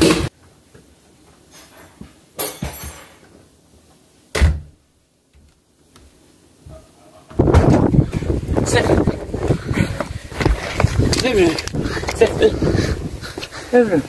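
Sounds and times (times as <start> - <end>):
door shutting thud: 4.3 - 4.7.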